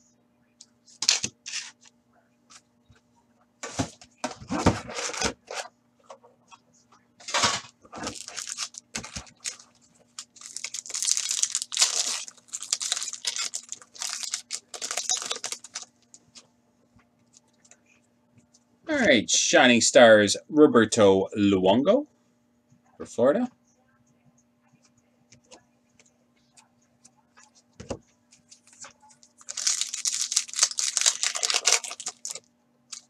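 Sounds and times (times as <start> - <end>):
foil wrappers crinkling and tearing: 8.0 - 16.0, 28.4 - 33.0.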